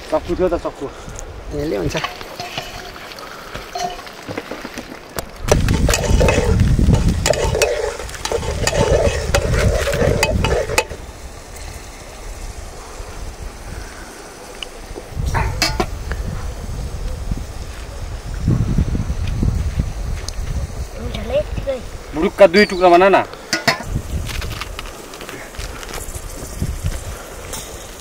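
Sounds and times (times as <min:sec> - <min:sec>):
food frying: 0:01.6 - 0:12.7
utensils clinking: 0:01.9 - 0:11.0, 0:23.5 - 0:23.9
spoon stirring and knocking pan: 0:02.0 - 0:03.0, 0:03.6 - 0:04.7, 0:05.5 - 0:11.0.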